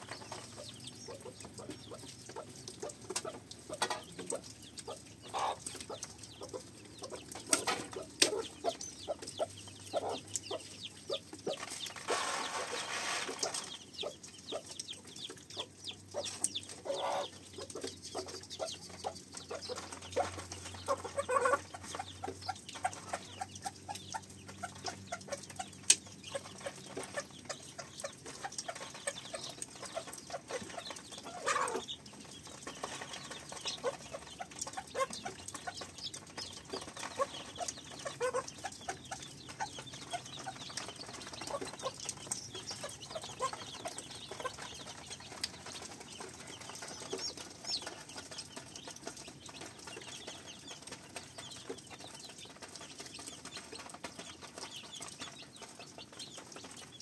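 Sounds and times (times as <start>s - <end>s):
poultry clucking: 0.0s - 57.0s
small clicks and taps: 13.3s - 57.0s.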